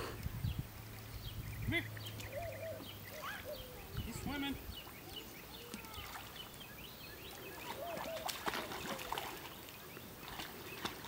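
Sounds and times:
birds chirping: 0:00.0 - 0:11.0
dog splashing in water: 0:07.3 - 0:11.0.

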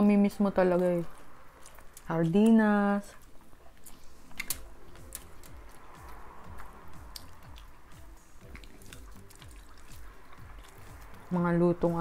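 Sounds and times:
people chewing food: 0:00.5 - 0:12.0
wet mouth clicks and smacks: 0:08.4 - 0:11.2.

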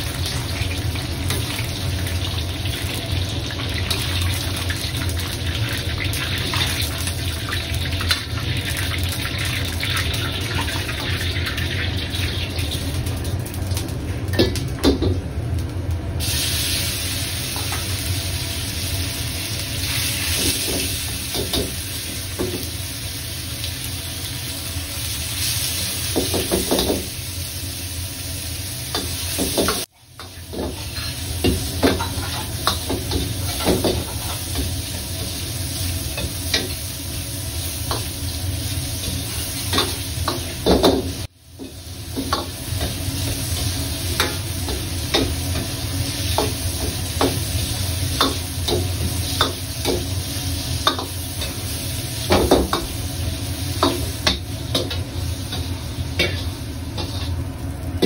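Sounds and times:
food sizzling in hot oil: 0:00.0 - 0:58.0
spatula scraping a pan: 0:31.9 - 0:32.6, 0:56.2 - 0:57.4.

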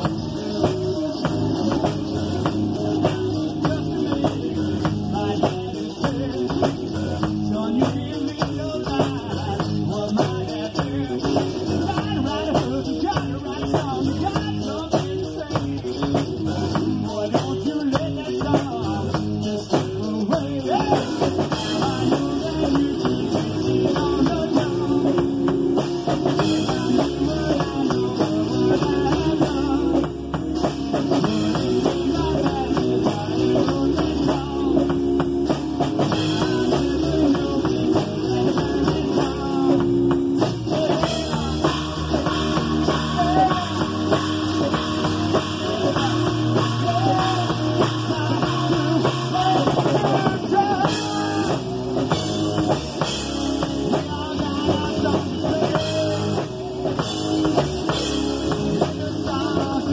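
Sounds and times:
drum kit beat: 0:00.0 - 0:59.9
rock band playing: 0:00.0 - 0:59.9.

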